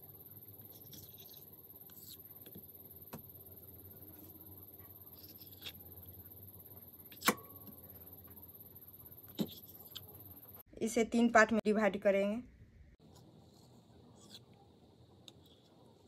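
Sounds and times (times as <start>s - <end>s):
knife trimming dough: 0.6s - 3.3s, 5.0s - 6.0s, 9.3s - 10.2s.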